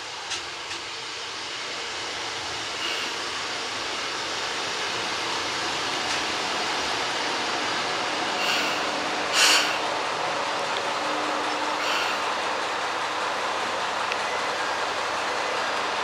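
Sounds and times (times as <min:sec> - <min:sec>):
railcar rumbling to a stop: 0:00.0 - 0:16.0
loud air hiss: 0:00.9 - 0:10.3, 0:11.0 - 0:13.0.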